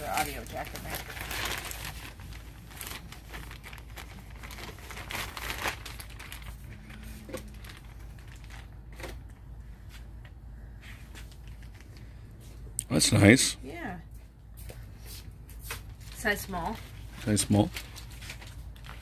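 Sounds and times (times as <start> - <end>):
plastic bag crinkling: 0.0 - 9.8, 11.1 - 12.2, 15.6 - 19.0.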